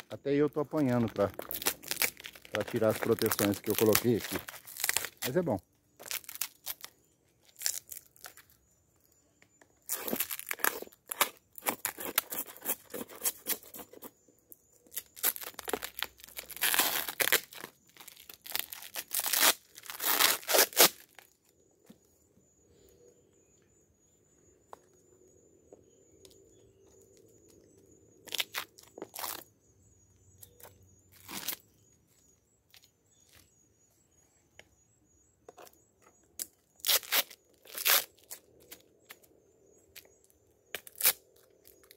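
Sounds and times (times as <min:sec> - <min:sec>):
wrapping tearing and crinkling: 0:00.7 - 0:05.4, 0:06.0 - 0:08.5, 0:09.9 - 0:13.9, 0:14.9 - 0:21.3, 0:31.2 - 0:31.6, 0:36.8 - 0:38.8, 0:40.7 - 0:41.9.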